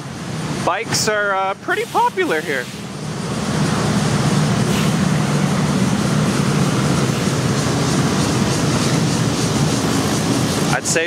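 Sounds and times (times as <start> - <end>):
many motor scooters running: 3.3 - 11.0.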